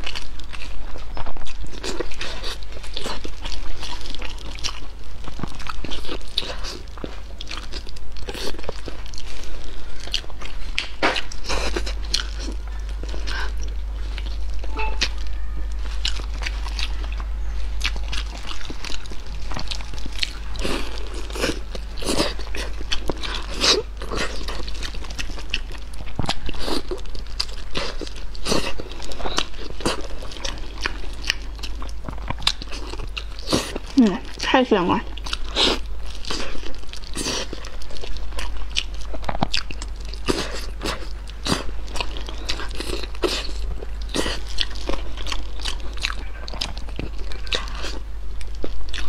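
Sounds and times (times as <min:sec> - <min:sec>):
low steady hum: 0:00.0 - 0:49.0
person chewing meat: 0:00.0 - 0:49.0.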